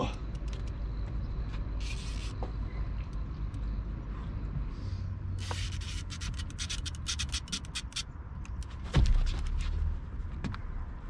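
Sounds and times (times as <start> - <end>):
fishing reel clicking: 1.8 - 2.4, 5.4 - 8.0.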